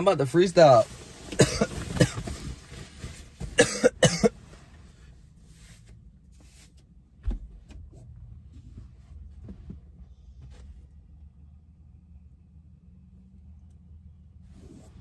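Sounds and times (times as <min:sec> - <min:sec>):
man coughing: 0:01.4 - 0:02.2, 0:03.6 - 0:04.4.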